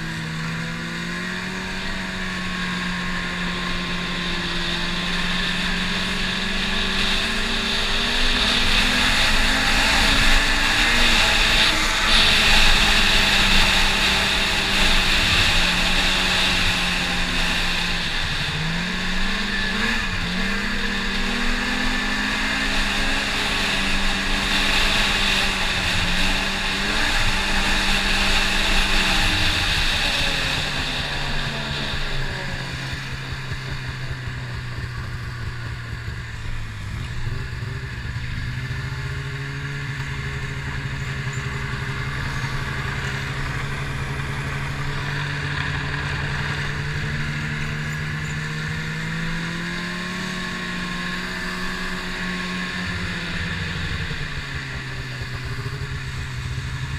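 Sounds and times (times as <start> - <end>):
snowmobile engine running: 0.0 - 56.9.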